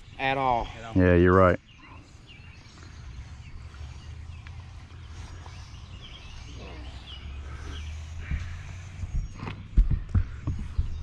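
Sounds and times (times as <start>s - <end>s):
faint bird chirps: 0.0s - 11.0s
steady low rumble: 2.2s - 11.0s.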